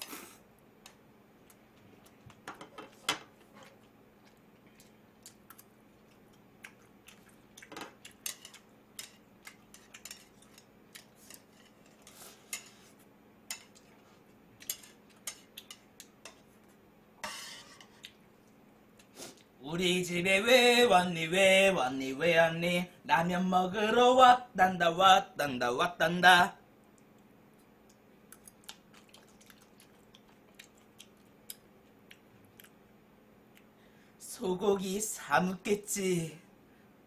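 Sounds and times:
chopsticks clinking on metal: 7.8s - 12.8s.

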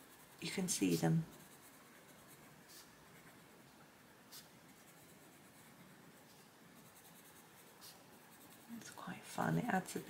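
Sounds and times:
pencil scratching on paper: 0.0s - 3.6s, 4.3s - 10.0s.

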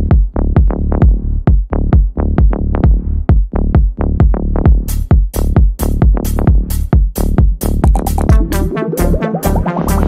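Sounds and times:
electronic dance music: 7.8s - 10.0s.

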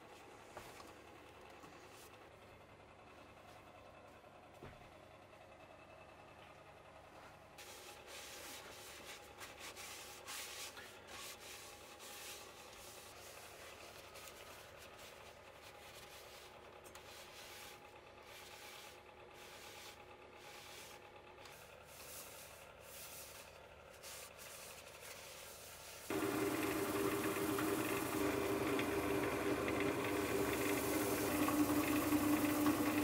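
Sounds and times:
cloth rag rubbing wood: 7.6s - 28.6s
lathe humming: 26.1s - 33.0s.

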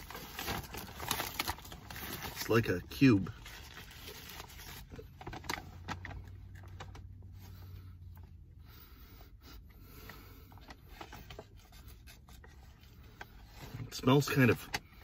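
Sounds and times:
foil wrapper crinkling: 0.0s - 6.3s.

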